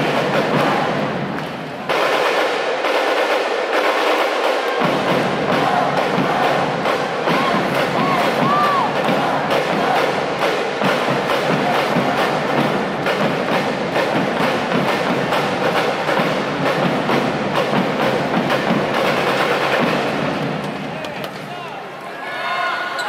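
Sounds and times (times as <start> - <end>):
drumline playing: 0.0 - 21.6.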